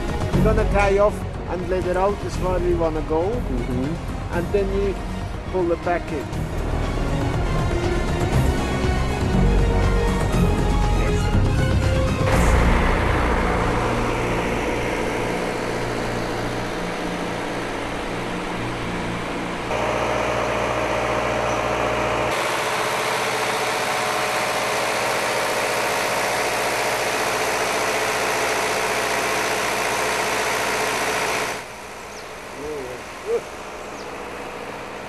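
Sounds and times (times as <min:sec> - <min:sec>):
machine engine running: 0:00.0 - 0:35.0.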